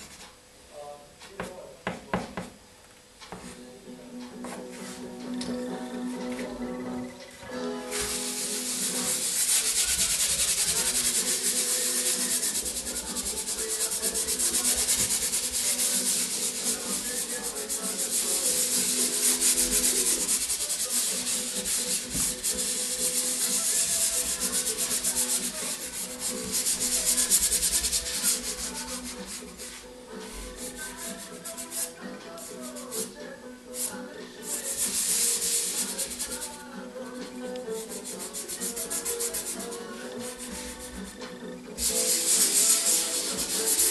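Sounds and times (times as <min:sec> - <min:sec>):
hand rubbing pastel on paper: 0:07.9 - 0:33.1, 0:33.8 - 0:36.6, 0:37.7 - 0:41.2, 0:41.8 - 0:43.9.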